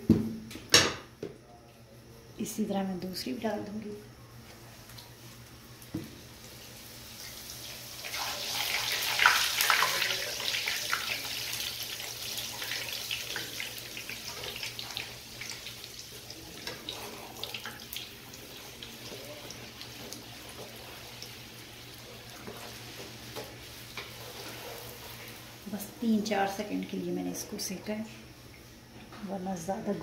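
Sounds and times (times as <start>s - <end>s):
bread sizzling in hot oil: 4.7s - 27.7s.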